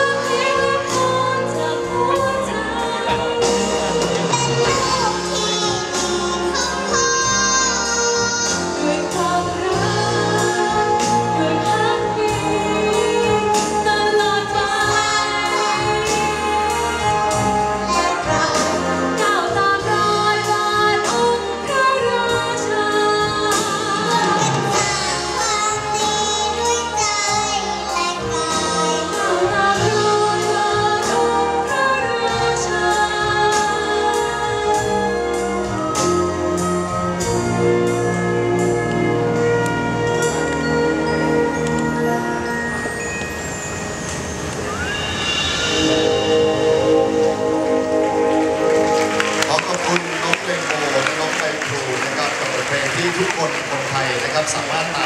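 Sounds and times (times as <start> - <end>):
woman singing with vibrato: 0.0 - 35.6
concert wind band: 0.0 - 55.0.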